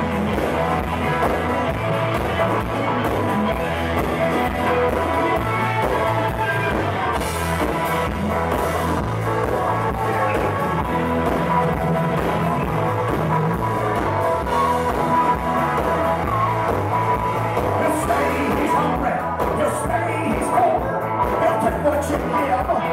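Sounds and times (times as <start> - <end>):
blues-rock band playing: 0.0 - 22.9.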